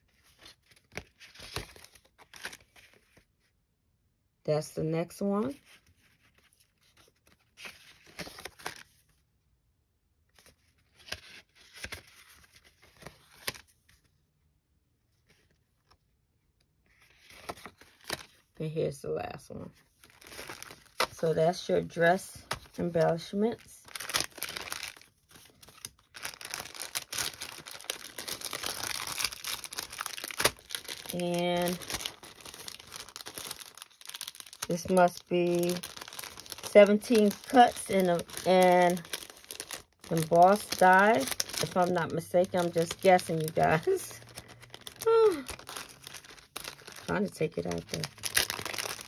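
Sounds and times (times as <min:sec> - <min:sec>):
plastic packaging rustling: 0:00.0 - 0:03.2, 0:19.9 - 0:21.7, 0:22.4 - 0:49.0
cardstock pieces being handled: 0:10.4 - 0:14.1.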